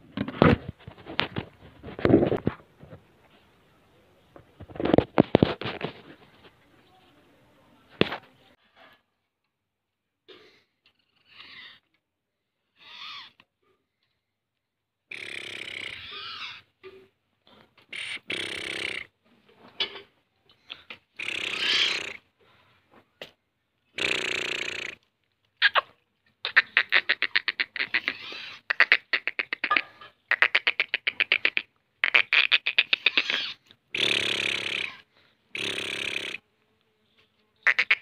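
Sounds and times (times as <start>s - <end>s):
bird calling in scratchy bursts: 11.1s - 11.8s, 12.8s - 13.4s, 15.1s - 16.7s, 17.9s - 19.1s, 21.2s - 22.2s, 23.9s - 25.0s, 25.6s - 36.4s, 37.6s - 38.0s
rapid clicking bird notes: 37.7s - 38.0s.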